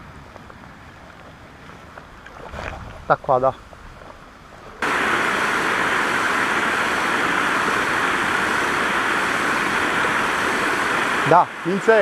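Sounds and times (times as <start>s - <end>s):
water rushing over weir: 4.7s - 12.0s.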